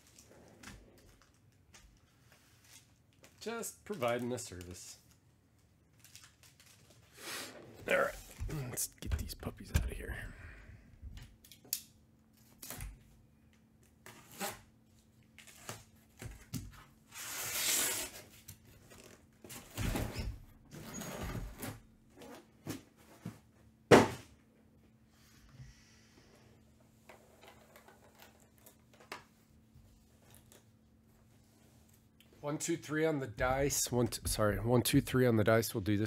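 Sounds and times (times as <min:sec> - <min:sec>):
knife slitting packing tape: 0:17.1 - 0:18.2.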